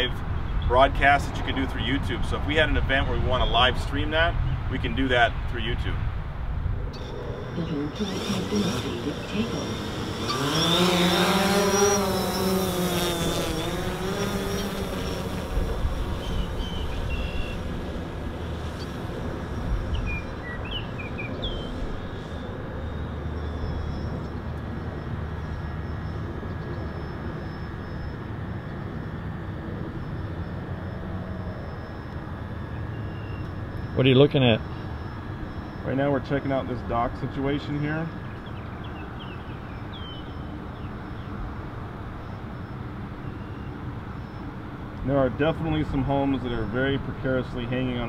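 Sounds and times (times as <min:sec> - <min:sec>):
wind rumbling on microphone: 0:00.0 - 0:12.8, 0:13.6 - 0:33.7
drone propellers buzzing: 0:06.0 - 0:48.0.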